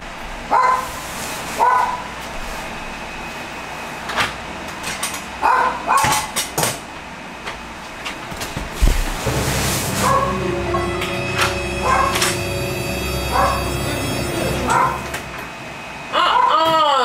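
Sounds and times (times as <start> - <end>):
dog barking: 0.5 - 0.9, 1.6 - 2.1, 5.4 - 6.3, 13.3 - 13.6, 14.7 - 15.0.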